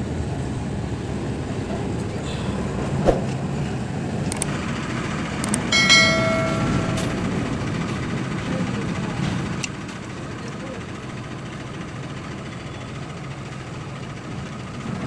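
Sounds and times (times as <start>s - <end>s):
sharp clicks: 4.3s - 4.6s
bell-like ding: 5.7s - 7.8s.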